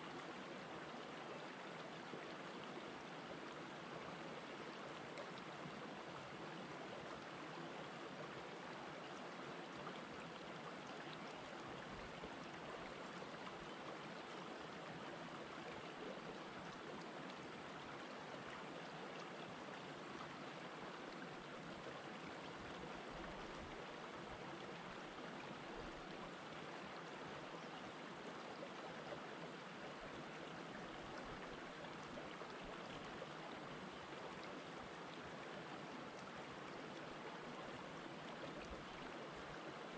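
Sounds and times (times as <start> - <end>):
stream flowing over rocks: 0.0 - 39.9.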